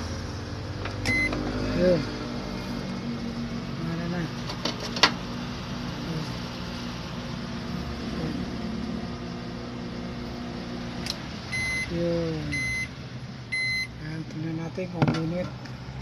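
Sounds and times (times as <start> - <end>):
microwave oven humming: 0.0 - 16.0
high beeps: 1.1 - 1.3, 11.5 - 12.9, 13.5 - 13.9.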